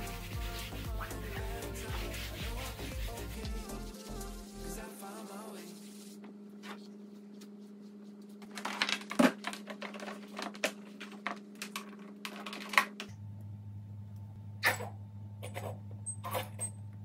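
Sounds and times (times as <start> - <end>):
electrical hum: 0.0 - 17.0
clicks and knocks of handling: 8.4 - 13.1.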